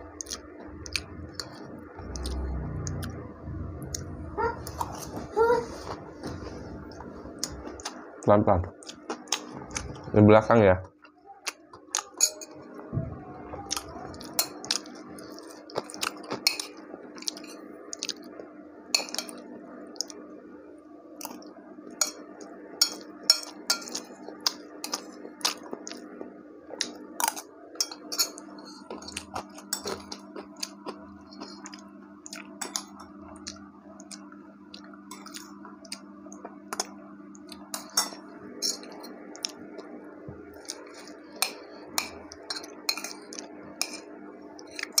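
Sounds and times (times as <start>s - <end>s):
steady low hum: 0.0s - 45.0s
chewing: 13.5s - 18.4s, 22.4s - 45.0s.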